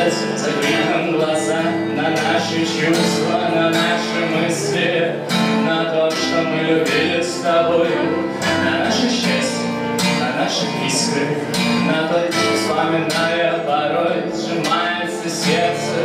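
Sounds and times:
man singing a light rock song: 0.0 - 16.0
strummed acoustic guitar: 0.0 - 16.0.

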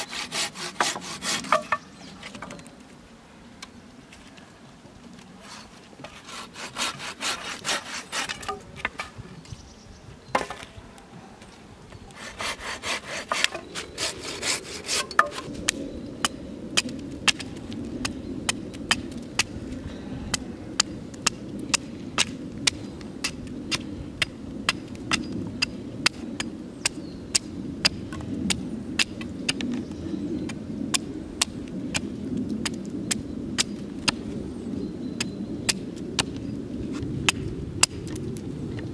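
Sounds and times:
hand saw cutting a branch: 0.0 - 1.8, 5.4 - 8.7, 12.1 - 15.5
hatchet chopping wood: 0.0 - 1.8, 14.9 - 15.5.

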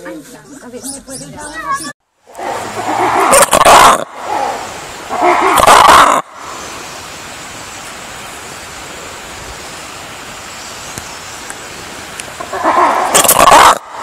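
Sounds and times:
background hiss: 2.1 - 14.0
loud bark-like call: 2.4 - 6.4, 12.5 - 14.0.

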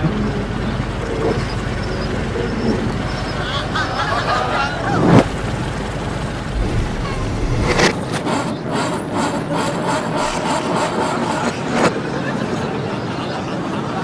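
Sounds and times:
steady mechanical rumble: 0.0 - 11.8
heavy thud: 6.5 - 8.2.

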